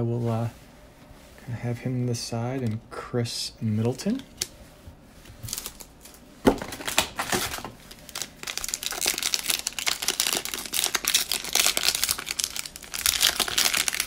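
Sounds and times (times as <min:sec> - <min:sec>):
cellophane wrapper crinkling: 0:05.4 - 0:14.0
pack being torn open: 0:06.7 - 0:14.0.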